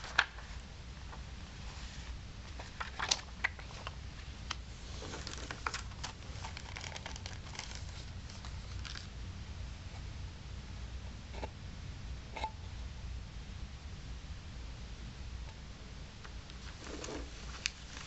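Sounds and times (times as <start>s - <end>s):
paper booklet closing: 0.0s - 0.5s, 5.0s - 9.1s
disc drawn from plastic sleeve: 5.0s - 9.1s.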